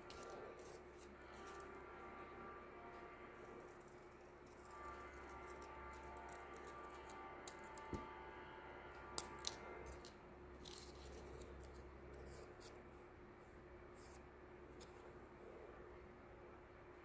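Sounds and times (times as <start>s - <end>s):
scissors snipping paper: 0.0s - 1.7s, 3.9s - 8.1s, 9.2s - 12.8s.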